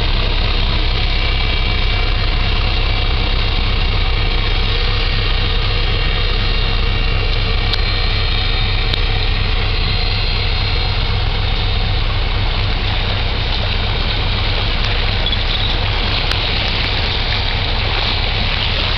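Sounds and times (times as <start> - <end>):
diesel engine droning: 0.0 - 18.9
engine whine: 0.0 - 18.9
water rushing from hull: 0.0 - 18.9.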